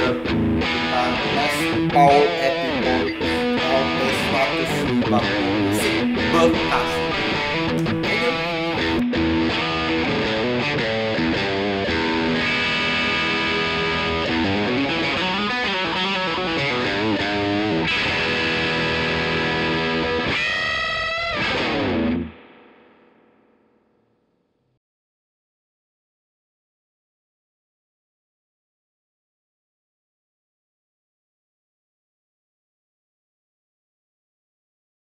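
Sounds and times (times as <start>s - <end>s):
distorted electric guitar: 0.0s - 23.9s.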